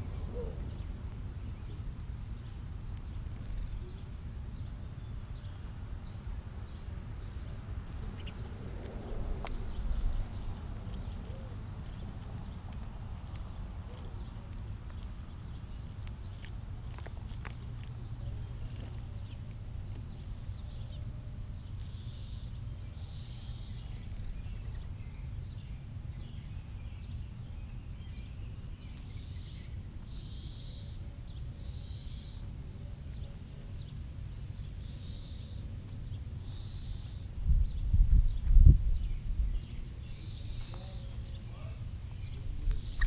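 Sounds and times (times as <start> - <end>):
mourning doves cooing: 0.0 - 1.0, 9.2 - 12.3
low rumble: 7.4 - 13.6
high buzzy bird calls: 17.4 - 25.4, 34.7 - 37.8, 39.2 - 43.0.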